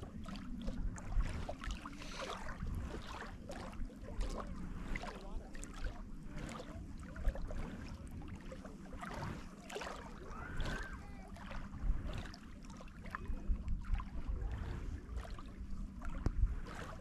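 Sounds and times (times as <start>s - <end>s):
water lapping: 0.0s - 17.0s
wind rumble on microphone: 0.0s - 17.0s
whistling glide: 10.1s - 11.2s, 13.1s - 13.8s.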